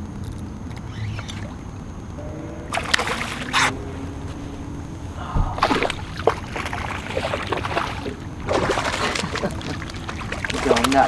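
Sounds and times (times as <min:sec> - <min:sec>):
water splashing and sloshing: 0:00.5 - 0:11.0.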